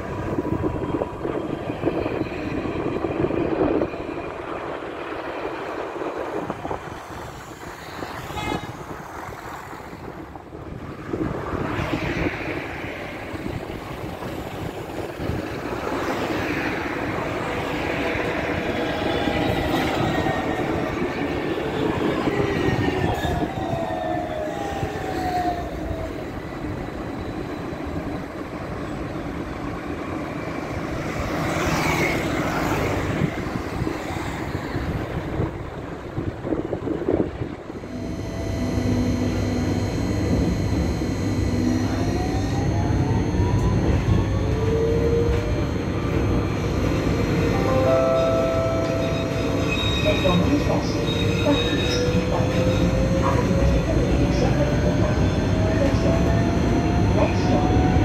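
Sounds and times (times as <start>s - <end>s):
tram pulling away: 8.8s - 58.0s
tram traction motors whining: 30.2s - 58.0s.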